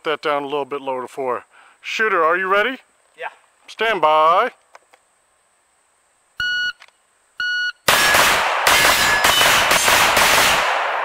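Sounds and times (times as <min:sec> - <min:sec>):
shot timer beeps: 0:06.4 - 0:06.8, 0:07.4 - 0:07.8
pistol shots: 0:07.9 - 0:11.0.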